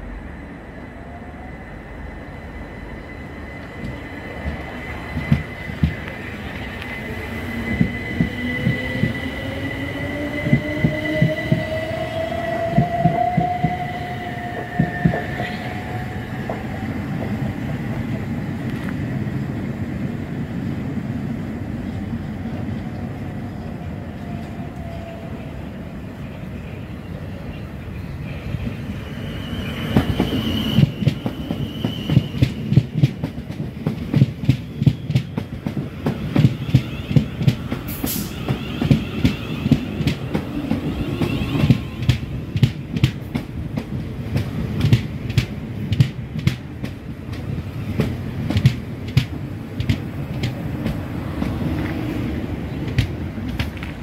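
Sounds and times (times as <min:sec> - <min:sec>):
passing train wheels clickety-clack: 0:02.0 - 0:25.2, 0:28.2 - 0:54.0
high steady squeal: 0:28.7 - 0:32.7.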